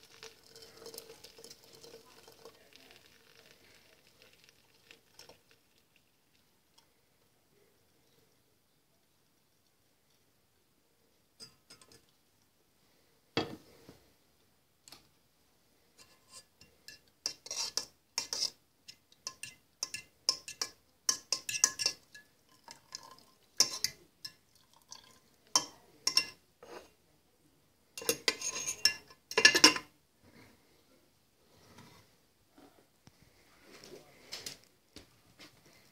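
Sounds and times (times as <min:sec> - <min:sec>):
metal utensil clinking in teapot: 0:16.0 - 0:26.9, 0:28.0 - 0:29.9.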